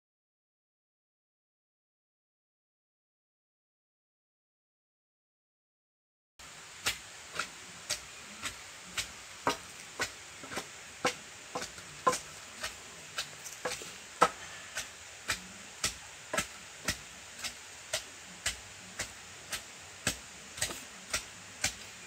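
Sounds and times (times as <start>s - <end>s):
pounding food on a leaf: 6.4s - 22.0s.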